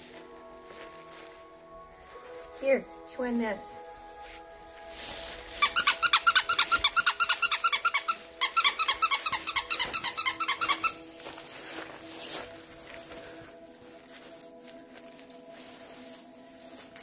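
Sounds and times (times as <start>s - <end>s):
rubber squeaky dog toy: 5.6s - 11.0s.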